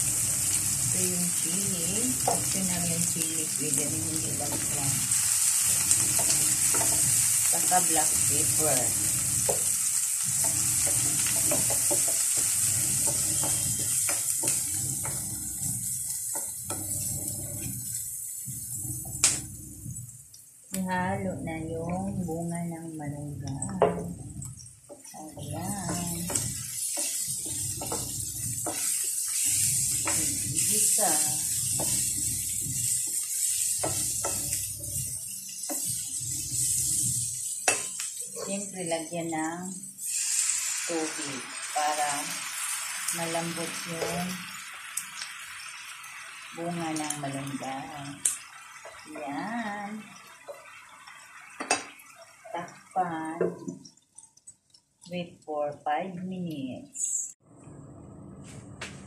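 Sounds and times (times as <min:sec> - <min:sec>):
vegetables sizzling in a frying pan: 0:00.0 - 0:55.4
wooden spoon scraping a pan: 0:00.1 - 0:19.9, 0:24.9 - 0:38.8.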